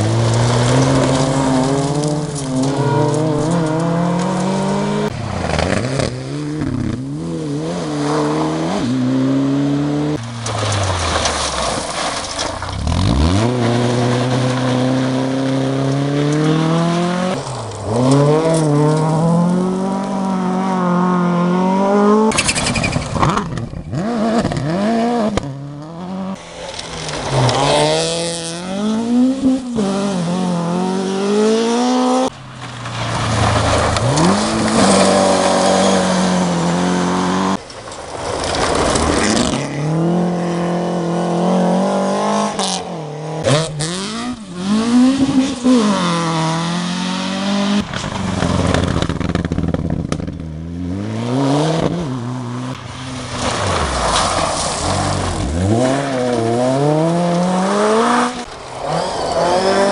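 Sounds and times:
gravel spraying from tyres: 0.0 - 6.1, 9.7 - 20.3, 22.3 - 23.3, 26.4 - 30.4, 32.3 - 40.0, 52.2 - 56.9, 57.6 - 59.9
rally car engines revving: 0.0 - 59.9.

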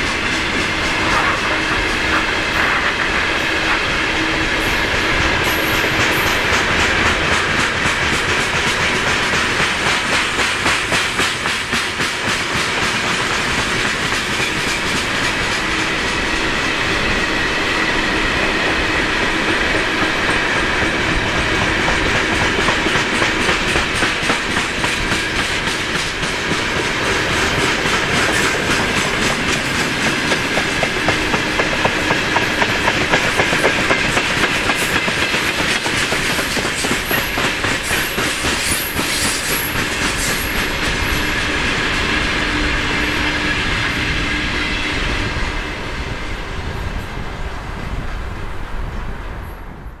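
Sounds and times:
train wheels clattering over rail joints: 5.4 - 16.4, 19.2 - 42.7.

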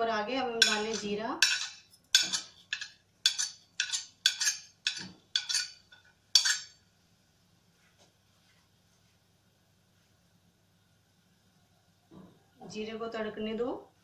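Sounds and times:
faint low hum: 0.0 - 14.0
metal spoon clinking on pan: 0.6 - 6.8.

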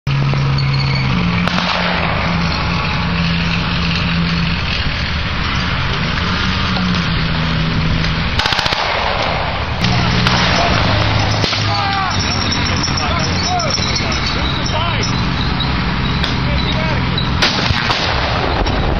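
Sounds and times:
tank engines running: 0.0 - 18.9
machine-gun fire burst: 1.4 - 3.0, 8.4 - 11.7, 17.4 - 18.7.

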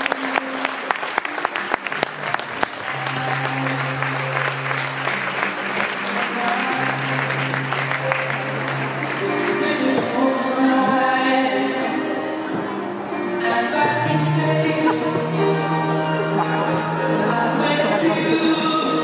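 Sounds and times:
audience clapping: 0.0 - 9.8
background music with held notes: 0.0 - 19.0.

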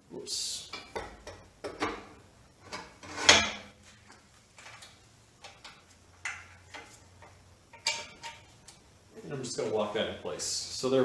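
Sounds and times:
metal knocks and scrapes: 0.8 - 3.8, 5.4 - 8.6.

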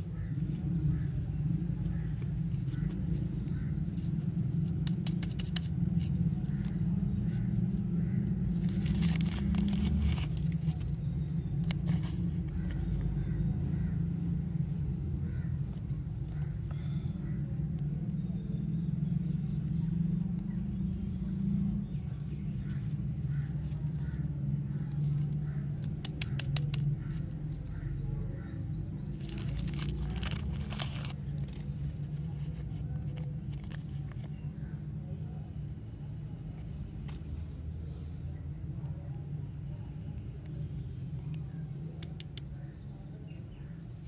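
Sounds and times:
low background rumble: 0.0 - 44.0
plastic wrapper crinkling: 8.5 - 12.8, 29.1 - 34.4.

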